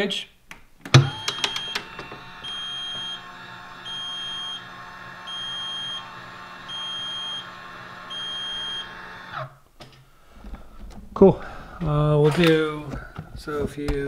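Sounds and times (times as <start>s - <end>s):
brake actuator motor whirring: 0.9s - 9.6s
high beeps: 3.9s - 4.6s.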